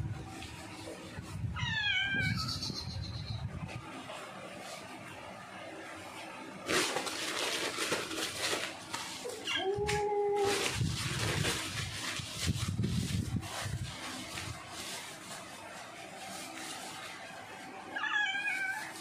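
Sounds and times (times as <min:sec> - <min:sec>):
cat meowing: 0:01.6 - 0:03.0, 0:18.0 - 0:19.0
towel rubbing wet fur: 0:09.0 - 0:19.0.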